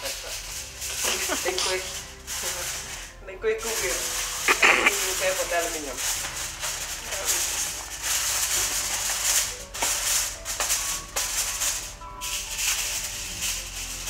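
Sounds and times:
aluminium foil crinkling: 0.0s - 14.0s.

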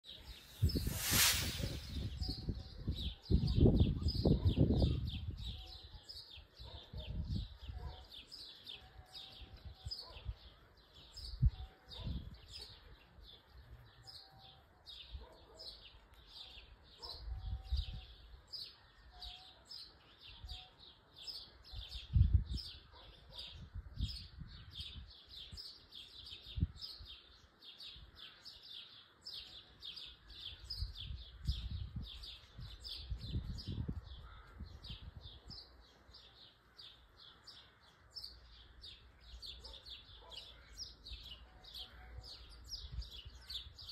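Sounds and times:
loud rushing whoosh: 0.2s - 2.6s
short high chirps: 0.2s - 2.6s
wind buffeting microphone: 0.2s - 5.6s, 21.9s - 22.8s, 30.6s - 35.7s.

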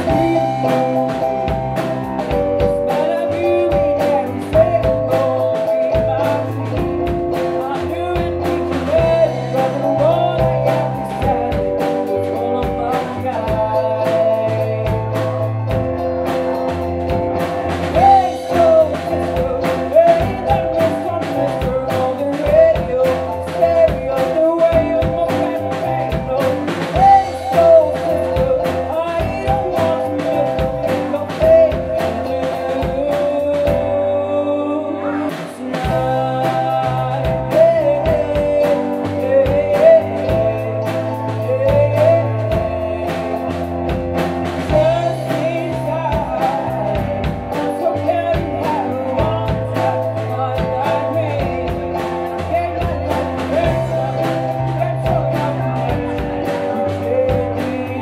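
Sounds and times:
drum kit beat: 0.0s - 34.3s, 34.9s - 58.0s
electric guitar: 0.0s - 58.0s
keyboard chords: 0.0s - 58.0s
woman singing lead: 17.2s - 43.9s.

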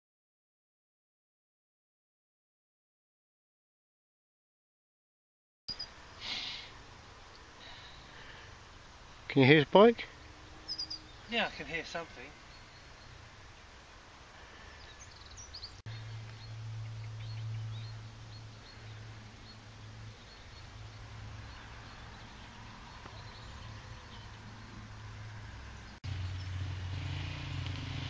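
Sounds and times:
birds chirping: 5.7s - 28.0s
distant motorcycle engine humming: 5.7s - 28.0s.

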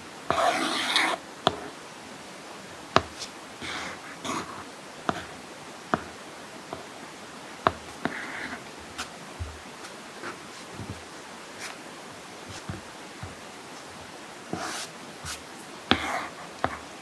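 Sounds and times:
stylus scratchy stroke: 0.3s - 1.2s.

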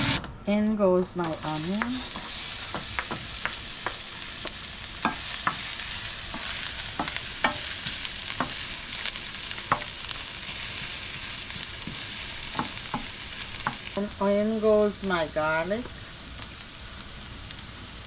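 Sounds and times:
wooden spoon knocking on pan: 1.2s - 5.7s, 6.3s - 8.6s, 9.7s - 10.0s, 11.8s - 13.9s
onion sizzling in hot oil: 1.2s - 18.0s.

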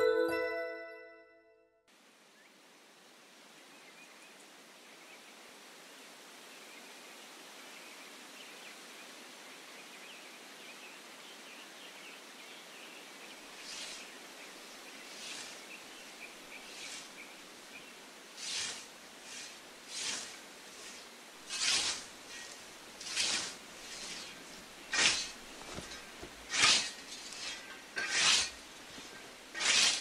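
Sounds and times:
steady outdoor hiss: 1.9s - 30.0s
soft swishes: 18.4s - 30.0s.

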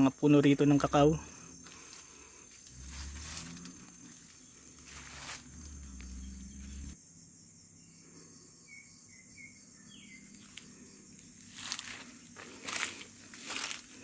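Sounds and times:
crickets droning: 0.0s - 14.0s
rustling: 1.7s - 6.2s
low rumble of movement: 2.6s - 7.0s.

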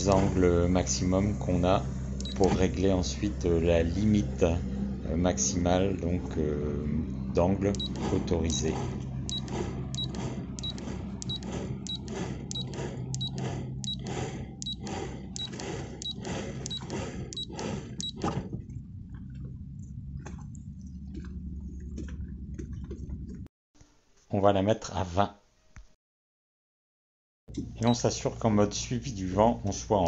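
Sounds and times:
regular ticks: 0.0s - 0.4s, 2.2s - 2.6s, 7.7s - 18.3s
electric motor running: 0.0s - 18.4s.

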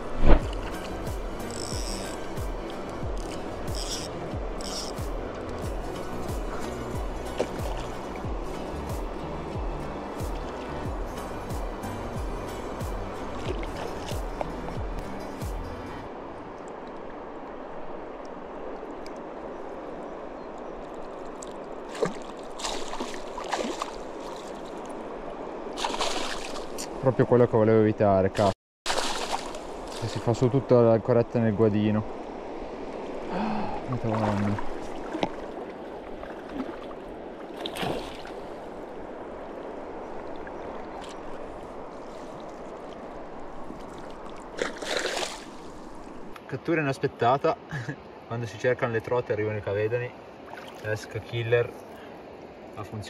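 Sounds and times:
river water rushing: 0.0s - 53.0s
fish splashing at the surface: 21.9s - 24.7s, 25.8s - 26.7s, 28.9s - 30.2s, 37.6s - 38.4s, 43.9s - 45.9s.

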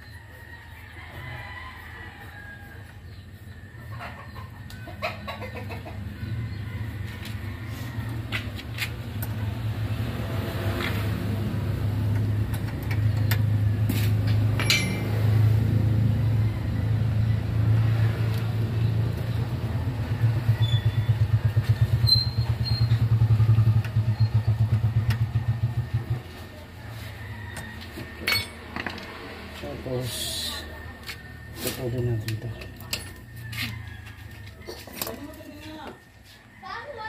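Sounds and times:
engine humming: 5.8s - 36.0s.

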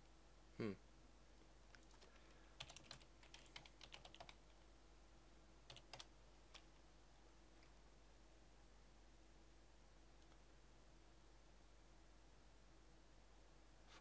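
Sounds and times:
faint keyboard typing: 1.4s - 4.7s, 5.6s - 6.9s, 10.1s - 10.5s.

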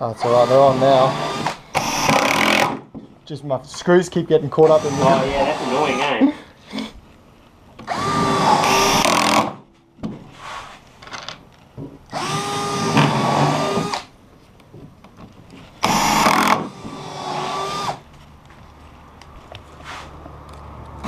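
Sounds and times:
cordless drill whining: 0.2s - 2.8s, 4.6s - 6.2s, 7.8s - 9.6s, 12.1s - 14.1s, 15.8s - 18.0s.

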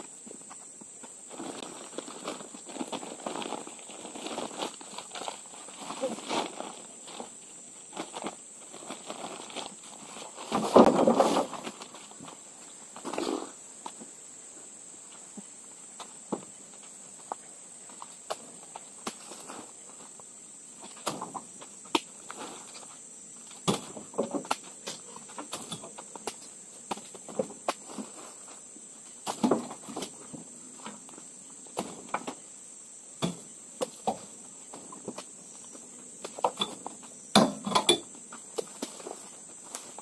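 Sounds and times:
fruit bunches thudding into truck bed: 10.5s - 11.8s, 23.6s - 24.5s, 29.2s - 30.2s, 31.8s - 32.4s.

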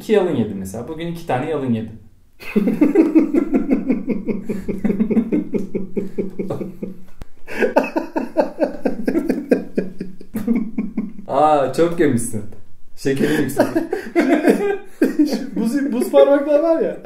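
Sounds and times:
men laughing hard: 2.4s - 11.3s, 13.2s - 16.7s.

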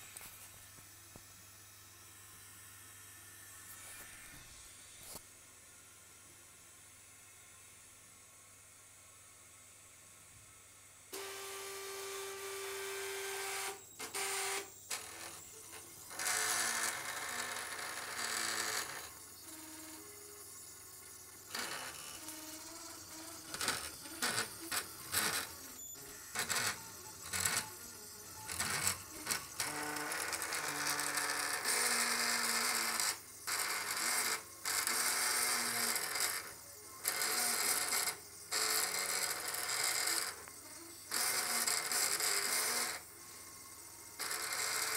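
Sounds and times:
stepper motor whining: 11.2s - 36.5s.

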